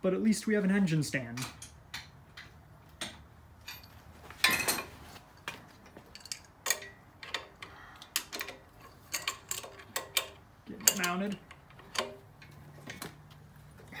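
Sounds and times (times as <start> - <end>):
wrenches clinking on metal: 3.6 - 13.0
metallic rattle: 3.6 - 13.1.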